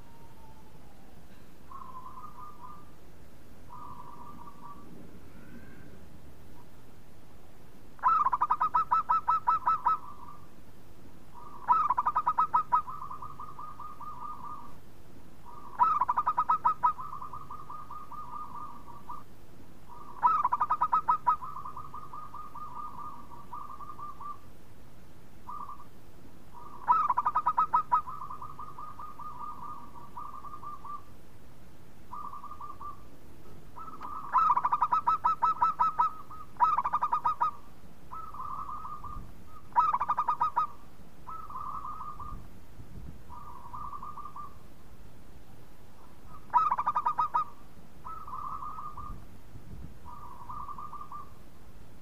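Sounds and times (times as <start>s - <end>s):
dove cooing: 0.0s - 3.0s, 3.7s - 6.7s, 8.0s - 10.5s, 11.3s - 14.8s, 15.4s - 19.3s, 19.9s - 24.5s, 25.4s - 25.9s, 26.5s - 31.2s, 32.1s - 42.5s, 43.3s - 44.7s, 46.0s - 49.2s, 50.0s - 51.4s.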